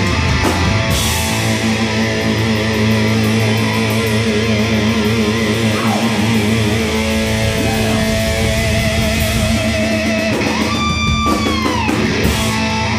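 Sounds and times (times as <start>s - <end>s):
bass: 0.0s - 12.9s
electric guitar: 0.0s - 12.9s.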